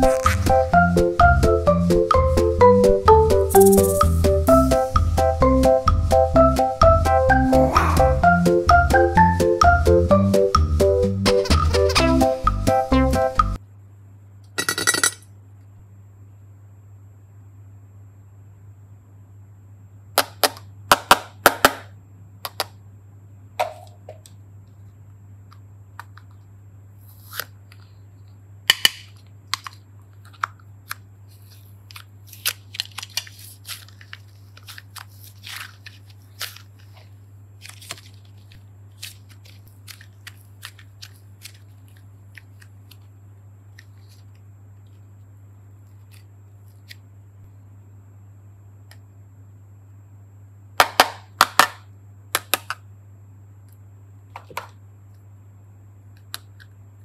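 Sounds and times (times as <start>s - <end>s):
low steady hum: 21.9s - 57.0s
plastic containers snapping open: 28.7s - 31.0s, 52.4s - 52.8s.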